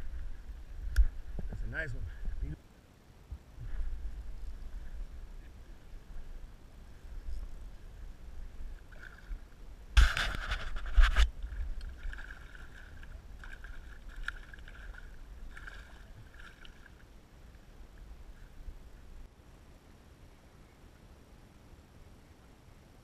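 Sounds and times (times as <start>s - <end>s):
fish thrashing and splashing: 10.0s - 17.1s.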